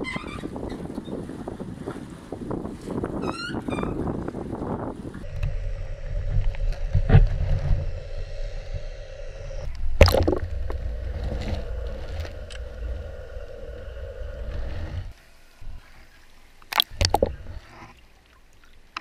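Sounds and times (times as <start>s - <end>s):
muffled underwater rumble: 4.2s - 16.0s, 16.8s - 17.9s
faint steady hum: 5.2s - 19.0s
sharp underwater knocks: 10.0s - 10.9s, 16.7s - 17.4s.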